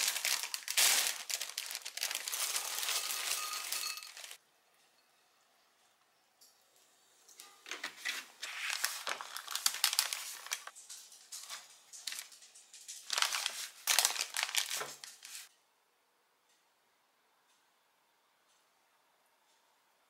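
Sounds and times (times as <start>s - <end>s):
bread crust crackling: 0.0s - 4.4s, 8.4s - 10.8s
paper wrapper rustling: 0.0s - 4.4s, 7.8s - 15.5s.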